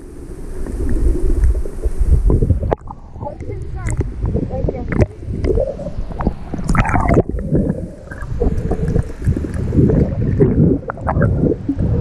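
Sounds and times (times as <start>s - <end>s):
water sloshing and gurgling: 0.0s - 12.0s
bubbles ticking: 1.4s - 12.0s.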